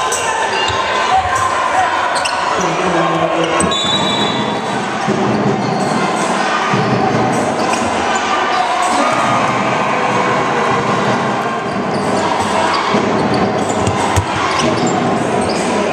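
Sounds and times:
crowd chatter and shouts: 0.0s - 15.9s
basketball bouncing on wooden court: 12.9s - 15.6s.

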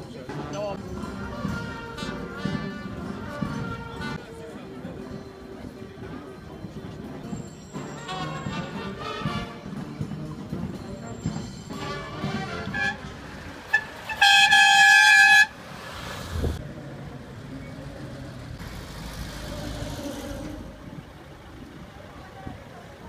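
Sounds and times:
music: 0.0s - 14.6s
car horn toot and blast: 11.8s - 15.6s
car engines pulling away: 15.5s - 23.0s.

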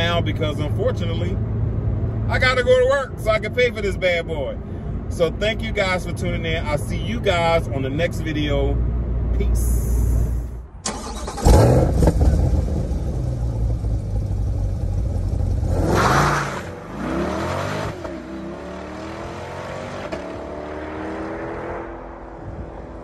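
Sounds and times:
car engine revving and accelerating: 11.1s - 23.0s.

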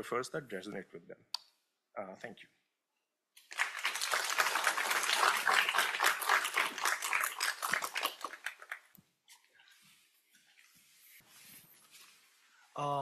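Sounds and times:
audience applauding: 3.4s - 8.9s.

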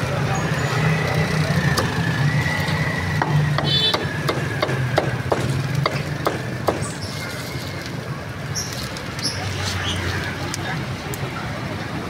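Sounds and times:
cleaver chopping on wooden block: 3.2s - 7.0s.

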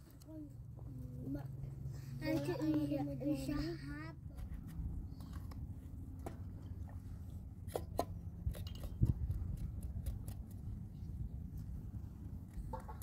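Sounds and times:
low steady rumble: 0.0s - 13.0s.

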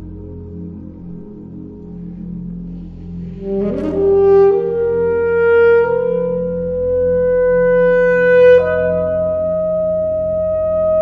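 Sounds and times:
low electronic drone: 0.0s - 11.0s
alto saxophone: 3.2s - 11.0s.

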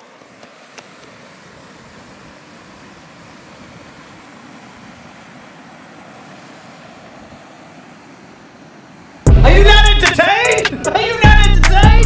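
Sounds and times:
river water rushing over weir: 0.0s - 11.3s.

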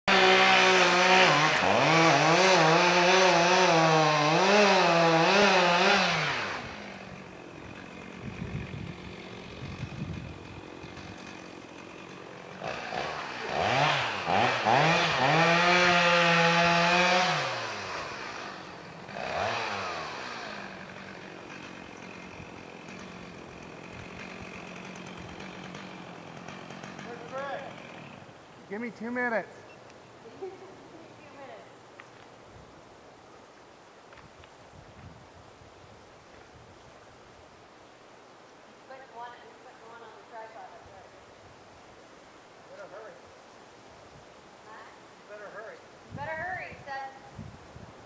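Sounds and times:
chainsaw revving and idling: 0.0s - 29.3s.

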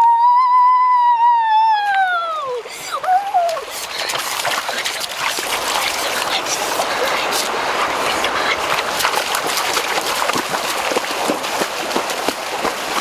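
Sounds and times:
boy whooping shout: 0.0s - 3.7s
boy yelling: 0.0s - 3.7s
splashing in shallow water: 1.9s - 13.0s.

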